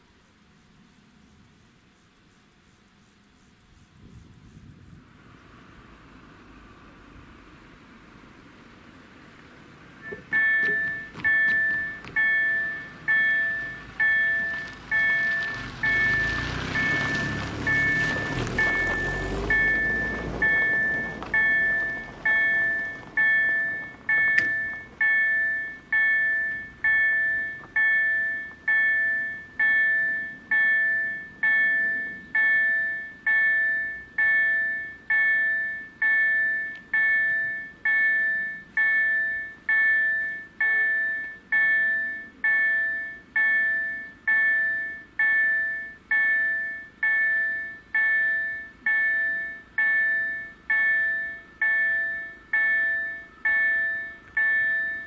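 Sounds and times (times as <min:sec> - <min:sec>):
level crossing bell ringing: 0:10.0 - 0:55.0.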